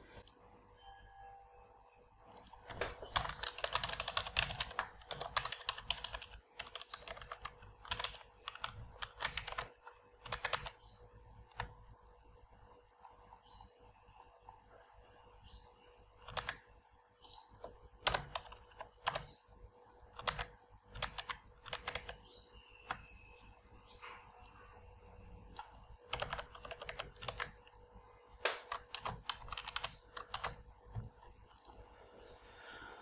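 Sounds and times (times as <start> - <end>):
faint steady hum: 0.0 - 33.0
typing on keyboard: 2.3 - 11.8, 16.2 - 19.4, 20.1 - 23.2, 25.5 - 31.8.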